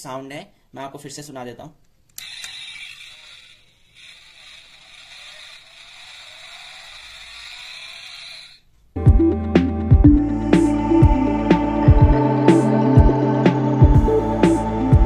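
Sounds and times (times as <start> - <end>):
toy electronic engine sound: 2.2 - 8.7.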